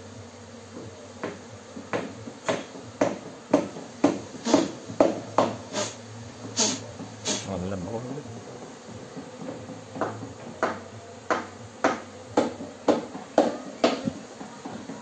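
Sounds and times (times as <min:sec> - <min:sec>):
sharp knocks: 0:01.2 - 0:05.6, 0:08.9 - 0:14.2.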